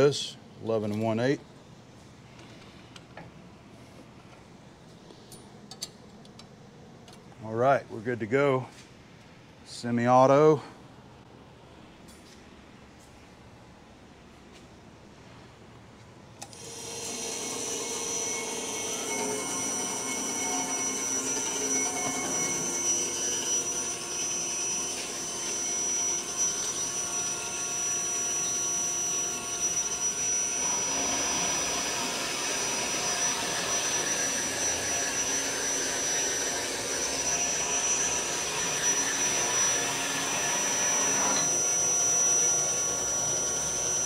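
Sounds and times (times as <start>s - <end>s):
band saw cutting metal: 16.6s - 44.0s.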